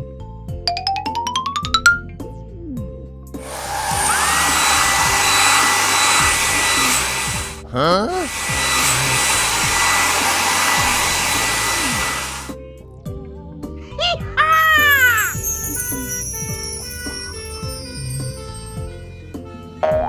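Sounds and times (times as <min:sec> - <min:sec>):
wavy rising sound effect: 0:03.4 - 0:07.6, 0:08.3 - 0:12.5
air blower rushing with whine: 0:03.4 - 0:12.6.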